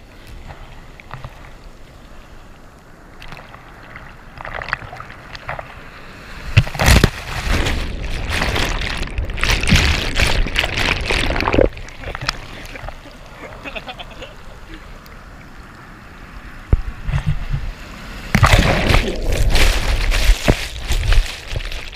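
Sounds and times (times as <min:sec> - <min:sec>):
surf washing: 0:00.0 - 0:21.9
wave crashing: 0:05.5 - 0:14.6, 0:16.7 - 0:21.9
churning water: 0:06.6 - 0:15.4, 0:16.6 - 0:21.9.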